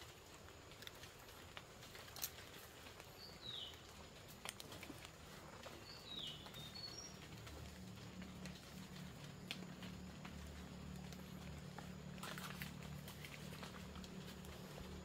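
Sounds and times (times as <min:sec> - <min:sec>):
low steady hum: 0:00.0 - 0:15.0
footsteps through dry leaves: 0:00.2 - 0:15.0
twigs snapping: 0:00.6 - 0:03.1, 0:04.2 - 0:15.0.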